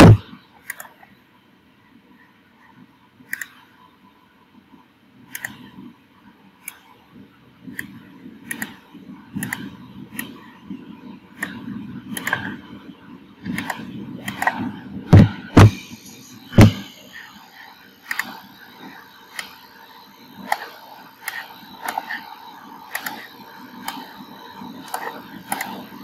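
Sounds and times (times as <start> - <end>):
thumps: 0.0 - 0.2, 15.1 - 15.8, 16.6 - 16.9
room noise: 0.0 - 0.3, 13.5 - 26.0
computer mouse clicking: 0.0 - 1.0, 3.3 - 3.6, 5.3 - 5.7, 7.7 - 8.8, 9.4 - 10.4, 11.4 - 12.6, 13.4 - 15.8, 18.0 - 18.4, 20.4 - 22.3, 22.9 - 24.2, 24.8 - 25.9.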